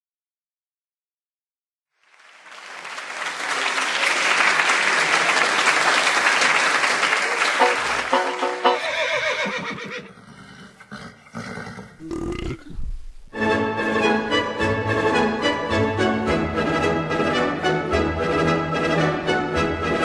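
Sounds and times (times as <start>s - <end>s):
crowd applauding: 1.9s - 9.0s
donkey braying: 8.7s - 12.9s.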